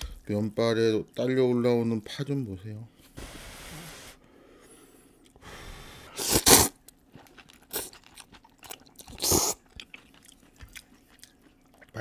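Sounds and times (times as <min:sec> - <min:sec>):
man slurping noodles: 0:05.9 - 0:06.8
soft chewing: 0:06.8 - 0:12.0.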